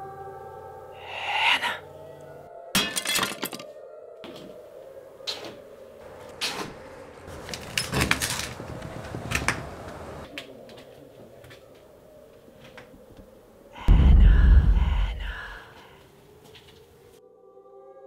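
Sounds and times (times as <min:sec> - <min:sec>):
steady low hum: 0:13.8 - 0:15.6.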